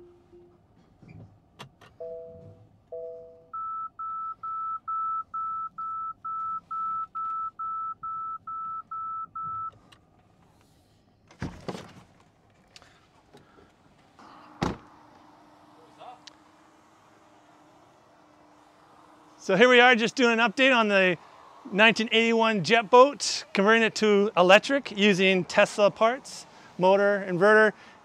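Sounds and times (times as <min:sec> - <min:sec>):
short low two-note beeps: 0:00.0 - 0:00.6, 0:02.0 - 0:09.7.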